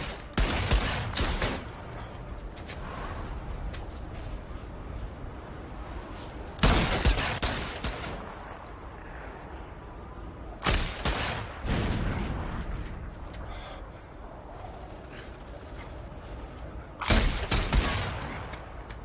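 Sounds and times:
gunfire bursts: 0.0 - 1.7
steady low background noise: 0.0 - 19.0.

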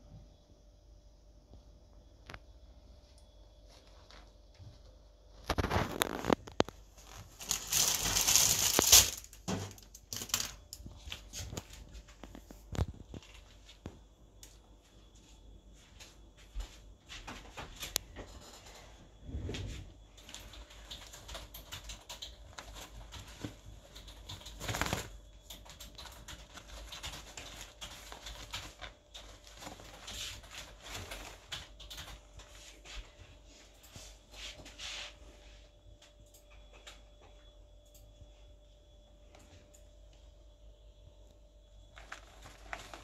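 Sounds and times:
plastic bag rustling and crackling: 5.4 - 13.8, 22.4 - 32.3, 41.9 - 43.0.

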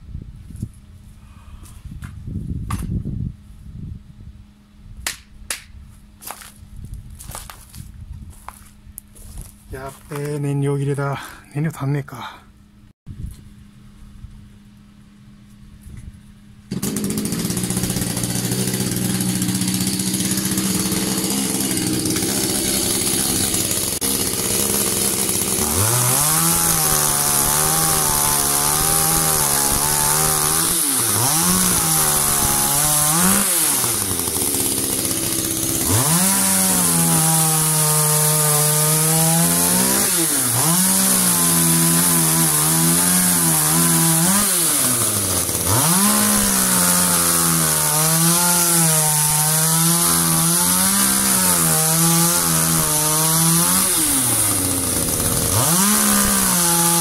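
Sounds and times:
chainsaw cutting a log: 16.7 - 57.0.

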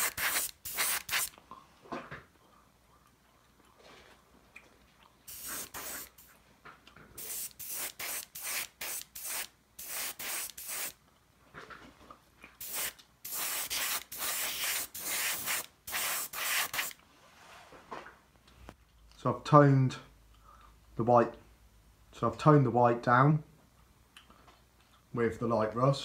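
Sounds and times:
airbrush spraying hissing bursts: 0.0 - 1.3, 5.3 - 6.3, 7.2 - 11.0, 12.6 - 17.0.

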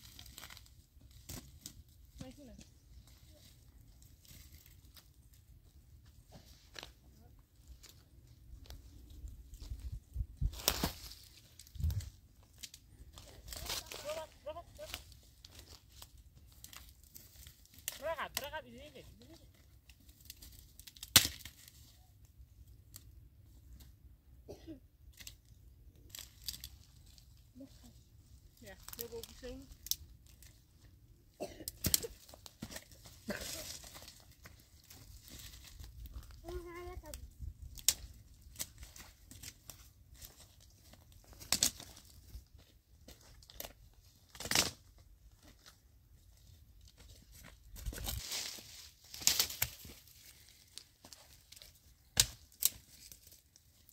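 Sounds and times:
twigs and dead leaves rustling: 0.0 - 24.0, 25.1 - 53.9
dry branch snapping: 10.5 - 14.2, 14.9 - 18.5, 20.1 - 21.8, 25.1 - 25.4, 26.1 - 27.2, 28.8 - 30.5, 31.7 - 36.4, 37.6 - 40.4, 41.3 - 42.1, 43.4 - 44.9, 47.8 - 50.6, 51.4 - 53.4.

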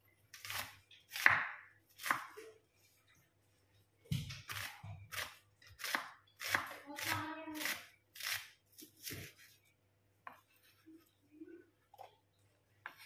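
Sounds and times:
knife cutting onion on wooden board: 0.3 - 2.6, 4.3 - 9.6.

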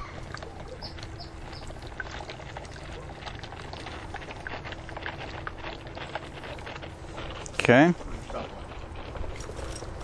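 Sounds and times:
faint steady hum: 0.0 - 10.0
gas bubbling through water: 0.0 - 10.0.

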